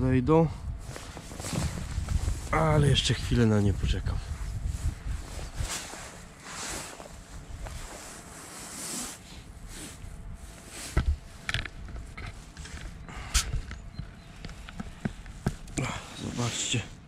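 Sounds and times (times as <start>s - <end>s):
wind buffeting microphone: 0.0s - 5.9s, 10.2s - 16.0s.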